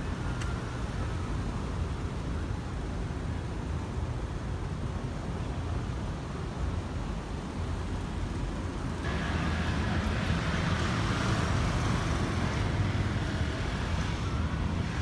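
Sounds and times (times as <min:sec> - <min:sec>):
passing cars rumbling: 0:08.9 - 0:15.0.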